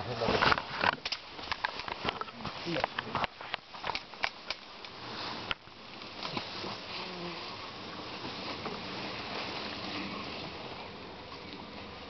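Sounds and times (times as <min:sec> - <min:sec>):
sharp clicks and rustles: 0:00.2 - 0:06.8
bee swarm buzzing: 0:04.7 - 0:12.0.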